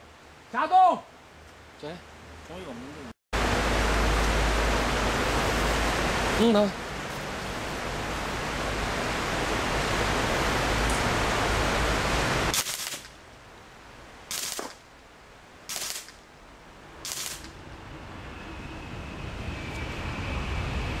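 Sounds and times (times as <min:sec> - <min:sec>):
steady rushing noise: 0:01.2 - 0:21.0
air rifle firing bursts: 0:12.5 - 0:13.1, 0:14.3 - 0:14.8, 0:15.7 - 0:16.1, 0:17.1 - 0:17.5.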